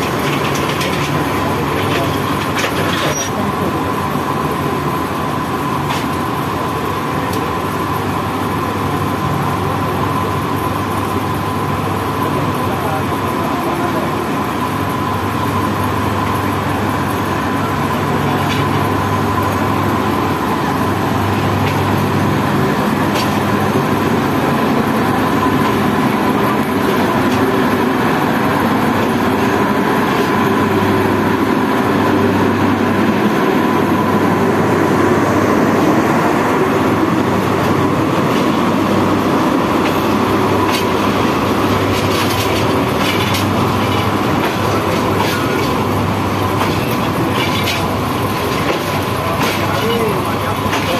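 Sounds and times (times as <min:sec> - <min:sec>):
wheels clicking over rail joints: 0:00.0 - 0:03.5, 0:39.8 - 0:50.9
train wheels rumbling on rails: 0:00.0 - 0:50.9.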